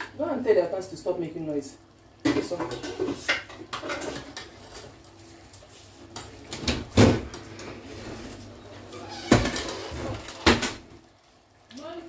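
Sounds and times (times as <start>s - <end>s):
metal pots and spoon clanking: 2.2s - 5.0s.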